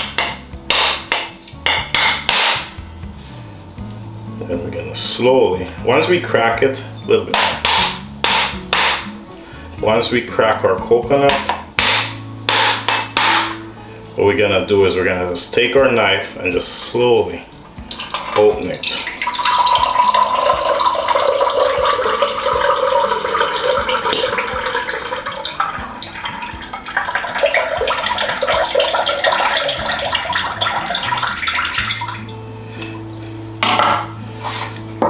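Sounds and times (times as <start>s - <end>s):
coconut water trickling into cup: 17.9s - 32.4s.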